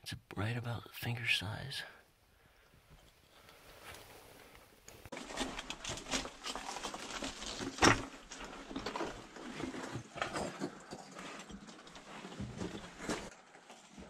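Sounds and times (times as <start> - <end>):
footsteps on loose rock: 5.1 - 13.4.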